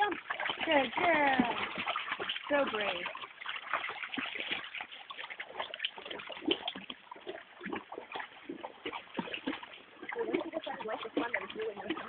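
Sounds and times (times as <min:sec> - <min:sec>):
creek water splashing: 0:00.0 - 0:12.0.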